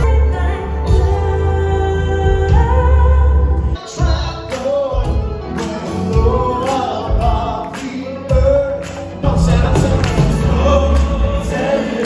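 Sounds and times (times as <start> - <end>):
bass: 0.0 - 12.0
guitar: 0.0 - 12.0
keyboard: 0.0 - 12.0
person singing: 0.0 - 12.0
drums keeping a steady beat: 3.8 - 12.0.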